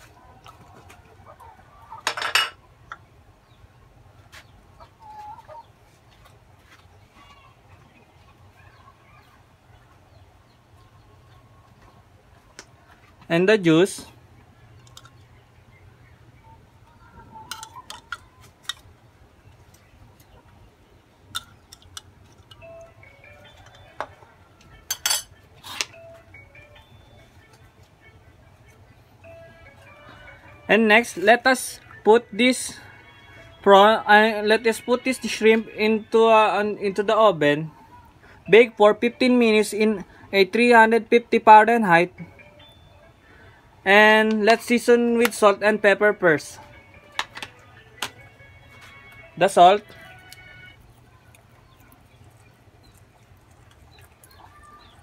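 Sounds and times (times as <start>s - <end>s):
chickens clucking: 0.0s - 13.3s, 14.0s - 26.0s, 46.6s - 55.0s
metal spoon clinking on tray: 2.1s - 2.6s, 17.5s - 18.2s, 24.9s - 25.4s.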